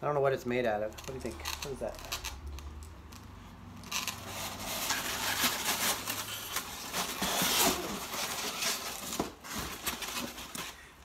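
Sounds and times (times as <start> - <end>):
rustling styrofoam packing: 3.9 - 11.0.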